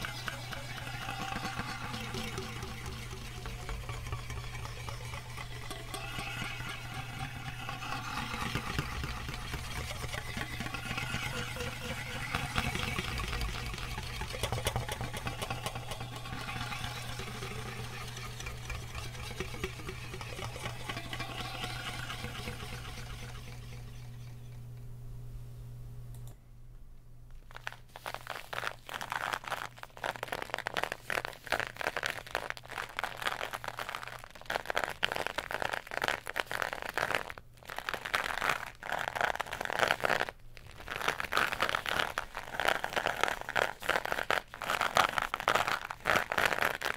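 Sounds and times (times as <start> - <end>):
fingertips crinkling aluminium foil: 0.0 - 24.1, 27.4 - 46.9
scraping cardboard tube: 0.0 - 24.4
low steady hum: 0.0 - 27.9.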